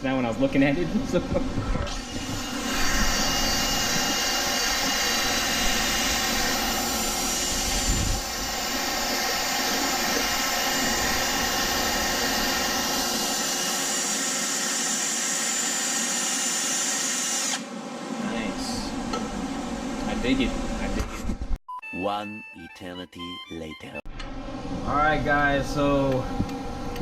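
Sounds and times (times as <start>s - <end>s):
drill whining with abrasive disc: 1.9s - 17.6s.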